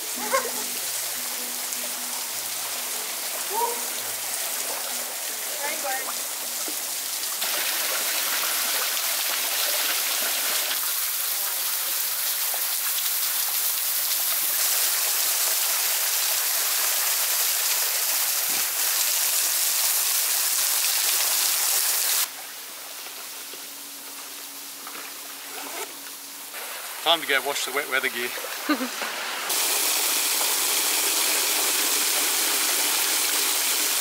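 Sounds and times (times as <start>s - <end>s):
waterfall splashing into pool: 0.0s - 22.3s, 26.5s - 34.0s.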